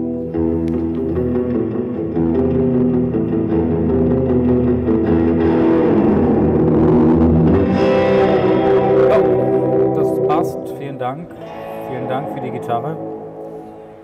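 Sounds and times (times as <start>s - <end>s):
loud guitar band music: 0.0s - 14.0s.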